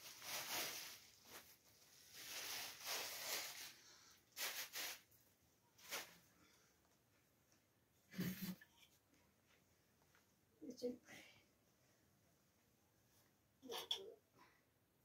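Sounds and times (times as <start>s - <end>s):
plastic bag rustling: 0.0s - 5.1s, 5.8s - 6.3s.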